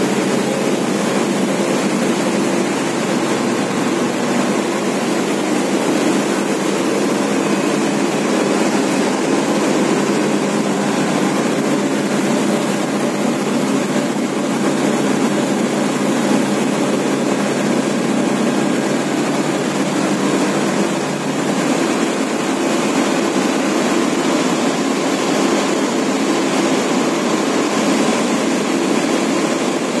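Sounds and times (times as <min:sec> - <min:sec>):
industrial machinery drone: 0:00.0 - 0:30.0.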